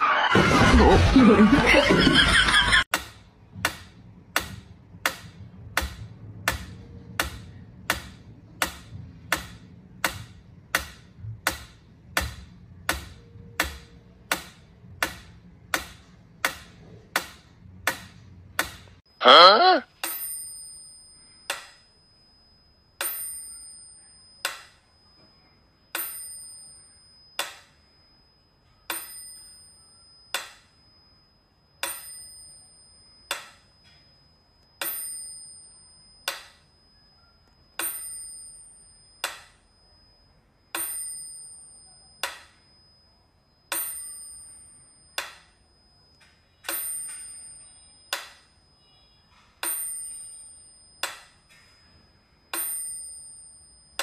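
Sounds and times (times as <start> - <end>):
metronome bell ringing: 19.9 - 54.0.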